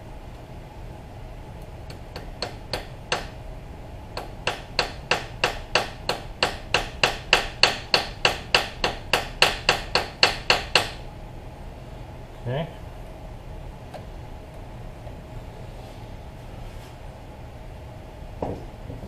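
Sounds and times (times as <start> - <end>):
hammer tapping: 1.9 - 3.4, 4.2 - 11.0.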